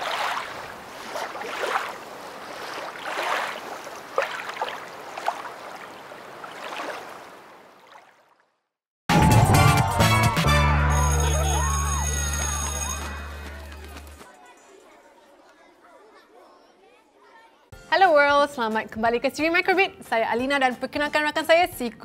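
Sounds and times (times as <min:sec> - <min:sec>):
water sloshing and lapping: 0:00.0 - 0:08.6
music: 0:09.1 - 0:14.2, 0:17.7 - 0:22.0.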